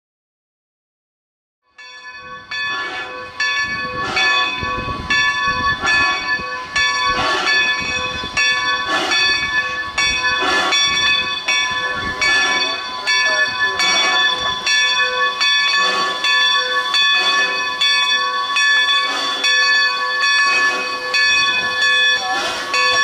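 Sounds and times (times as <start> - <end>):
locomotive bell ringing: 1.7 - 23.0
steam locomotive exhaust and hiss: 2.3 - 23.0.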